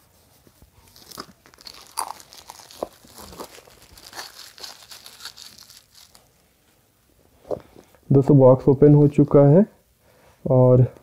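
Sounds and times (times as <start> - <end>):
plastic shrink-wrap tearing: 0.9 - 6.4.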